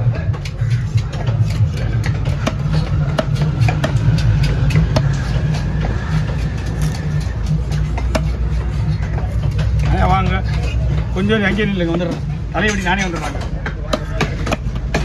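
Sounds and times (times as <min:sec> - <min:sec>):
knife chopping fish on wood: 0:00.3 - 0:10.0, 0:13.4 - 0:15.0.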